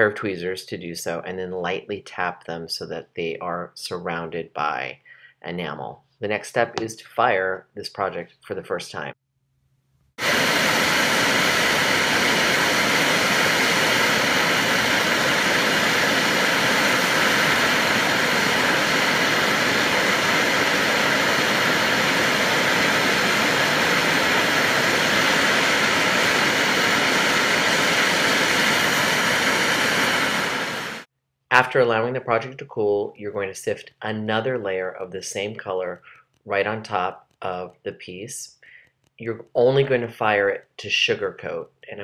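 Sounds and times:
hand torch hissing: 10.2 - 31.1.

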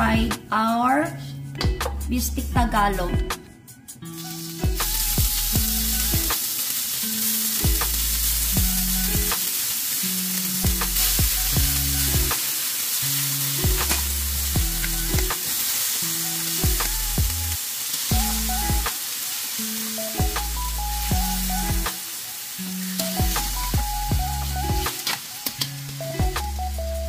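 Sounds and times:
background music with bass and beat: 0.0 - 6.4, 7.6 - 9.4, 10.6 - 12.4, 13.5 - 15.4, 16.5 - 19.0, 20.0 - 22.0, 23.0 - 27.0
beef sizzling in hot oil: 4.1 - 27.0.

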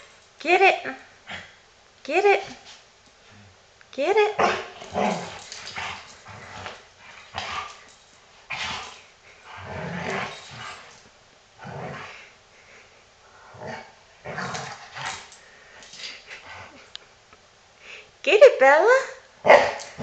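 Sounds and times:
dog growling and grunting: 4.3 - 7.8, 8.5 - 11.0, 13.4 - 15.3.

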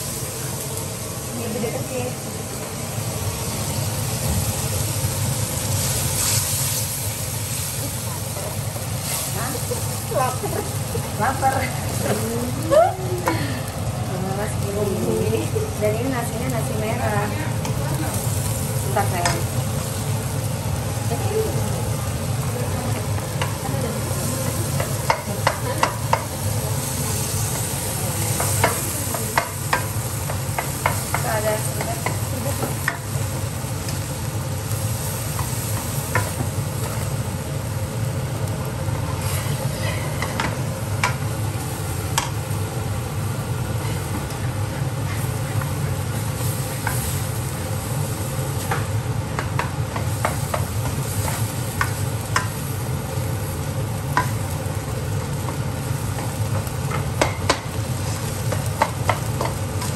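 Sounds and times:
fried rice sizzling in a wok: 0.0 - 59.9
spatula tapping a pan: 24.8 - 26.3, 28.4 - 33.1, 35.3 - 36.5, 46.8 - 47.1, 48.6 - 52.6, 54.1 - 54.5, 55.4 - 57.8, 58.4 - 59.9.

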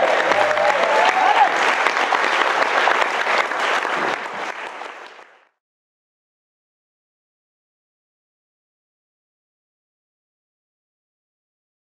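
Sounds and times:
room of people clapping: 0.0 - 5.6.

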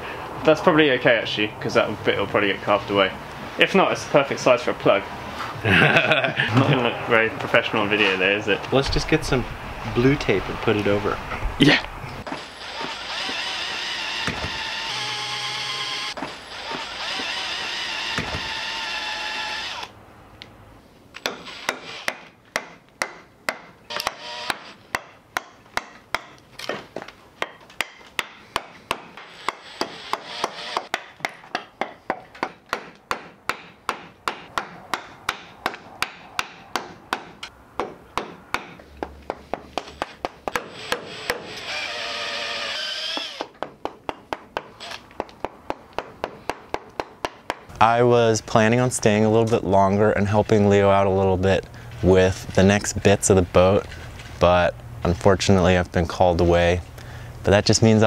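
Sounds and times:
drill boring into wood: 12.3 - 19.9, 21.2 - 22.1, 23.9 - 24.8, 29.2 - 30.9, 40.5 - 43.5
mallet striking chisel: 21.2 - 26.4, 27.4 - 41.5, 43.4 - 47.7.

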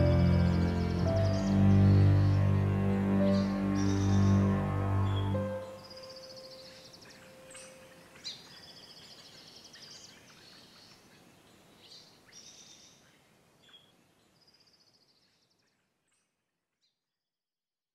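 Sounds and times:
held music note: 0.0 - 6.3
birds chirping and trilling: 0.0 - 16.3.

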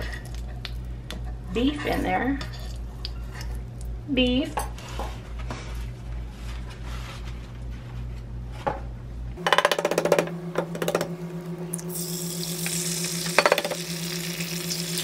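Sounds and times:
fat sizzling: 11.7 - 15.0
egg cracking on pan: 12.6 - 15.0.

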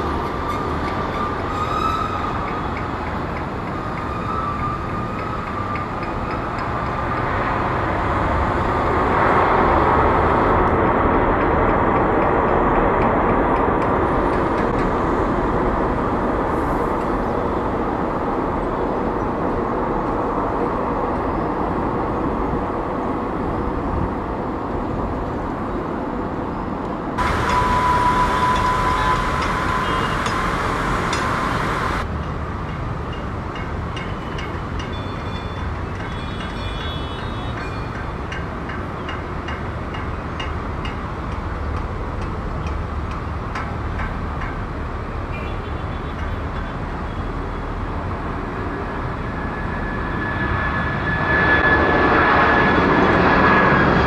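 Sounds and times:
jet engines rumbling: 0.0 - 34.8, 46.4 - 54.0
jet engine high whine: 0.0 - 37.4, 44.6 - 54.0.

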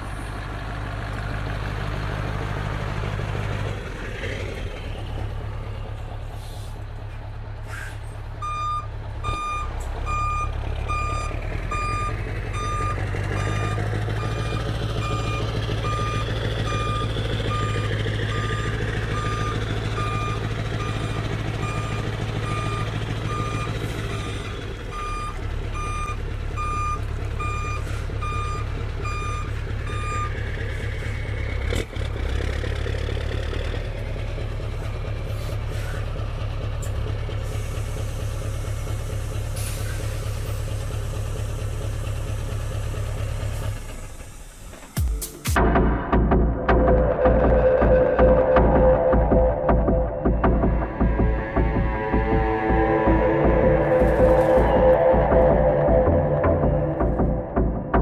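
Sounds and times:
diesel truck engine droning: 0.0 - 58.0
reversing alarm beeping: 8.4 - 30.4, 46.8 - 58.0.

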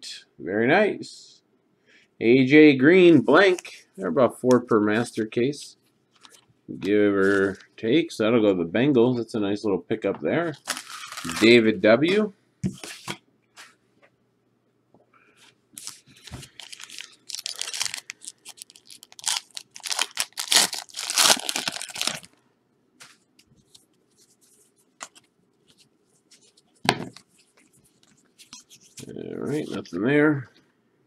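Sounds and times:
foil wrappers tearing and crinkling: 10.6 - 11.6, 15.8 - 22.3
cards rustling: 10.6 - 11.7, 15.8 - 22.3, 23.0 - 30.0.

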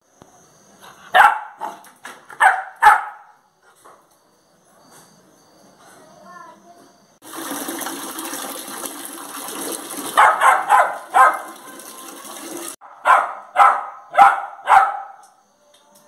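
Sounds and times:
puppy barking: 1.1 - 3.4, 10.2 - 11.6, 12.8 - 15.2.

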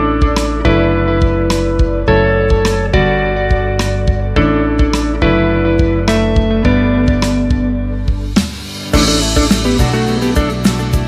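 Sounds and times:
guitar background music: 0.0 - 11.0
steady drum beat: 5.8 - 11.0.

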